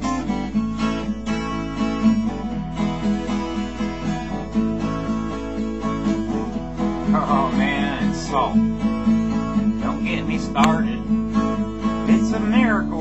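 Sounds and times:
acoustic guitar strummed chords: 0.0 - 13.0.

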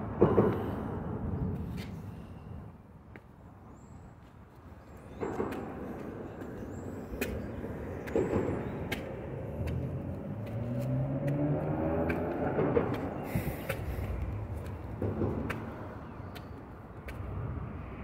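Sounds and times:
traffic rumble: 0.0 - 18.0
footsteps on concrete steps: 3.0 - 3.4, 4.2 - 17.4
vehicle engine speeding up: 8.2 - 15.6.

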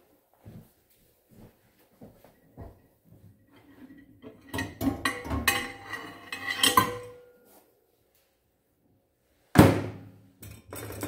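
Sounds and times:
wire rack and dish clattering: 3.6 - 7.4, 10.4 - 11.0.

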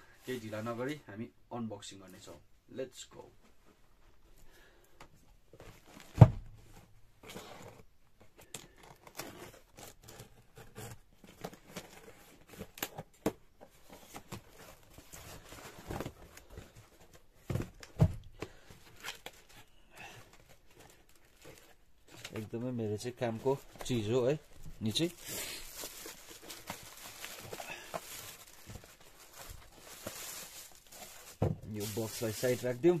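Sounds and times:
cardboard rustling and scraping: 5.5 - 33.0.

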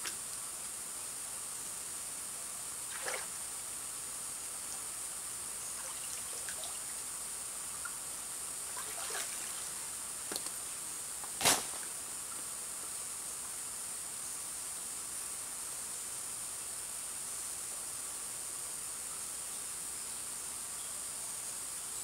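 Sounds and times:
steady high hiss: 0.0 - 22.0
water splashing: 2.9 - 3.3, 8.7 - 9.8
stream water trickling: 5.7 - 8.0, 8.6 - 9.8.

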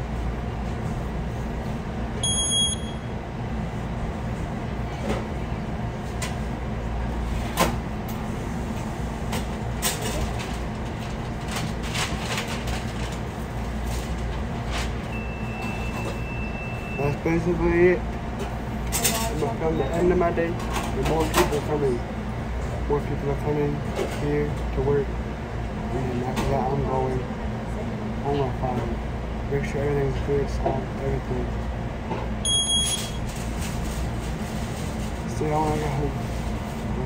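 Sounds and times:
low hum of equipment: 0.0 - 37.0
short electronic beep: 2.2 - 3.1, 32.4 - 33.2
steady high electronic tone: 2.2 - 3.1.

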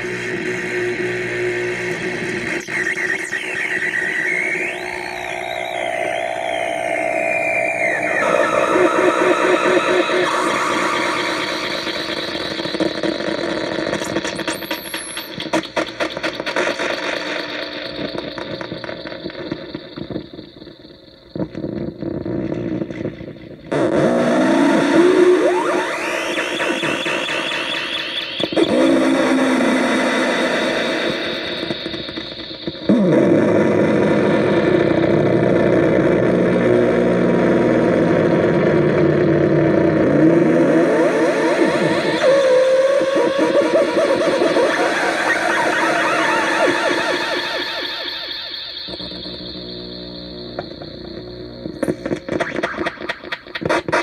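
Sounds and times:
synth buzzing static and drones: 0.0 - 54.0.

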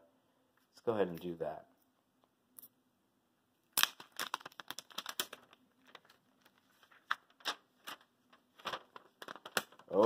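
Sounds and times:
plastic film crinkling: 3.7 - 10.0.

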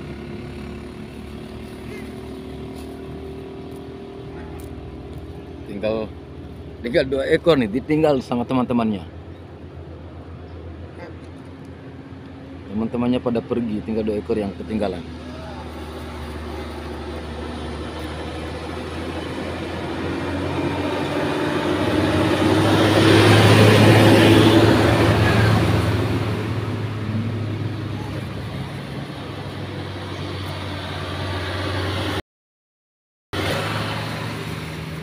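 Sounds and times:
dump truck driving past: 14.6 - 32.2, 33.4 - 35.0.

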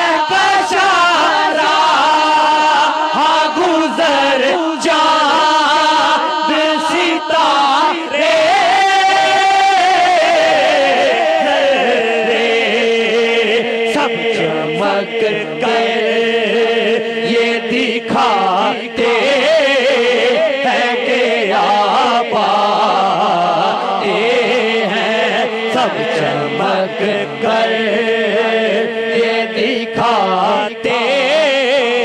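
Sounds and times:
man singing through microphone: 0.0 - 32.0
voices chanting: 14.0 - 31.2.

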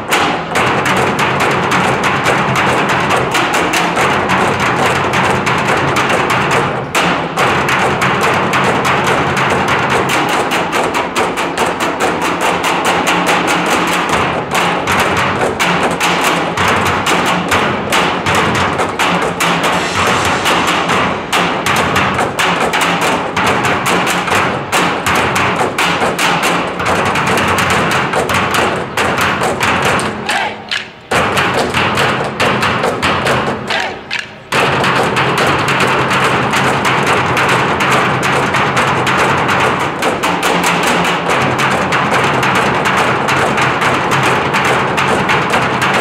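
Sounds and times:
cymbals: 0.0 - 40.0
sticks beating steel drums: 0.0 - 46.0
bass drum: 14.0 - 26.1.

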